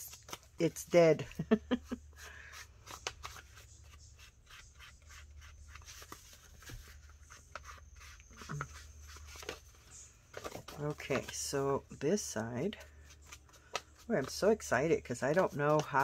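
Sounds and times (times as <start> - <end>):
paper taps and rustles: 5.8 - 7.8.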